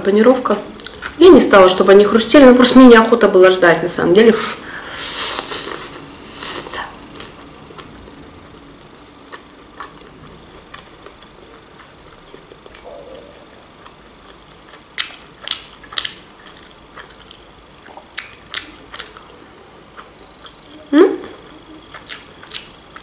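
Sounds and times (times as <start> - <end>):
person chewing: 0.8 - 1.2, 9.2 - 23.0.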